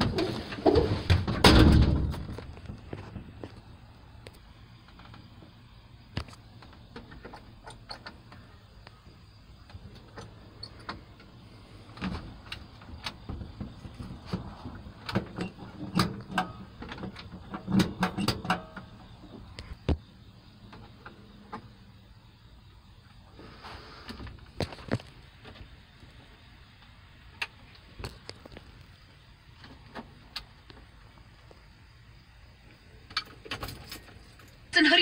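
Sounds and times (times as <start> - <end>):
sharp engine clicks and knocks: 1.1 - 9.0, 9.6 - 20.1.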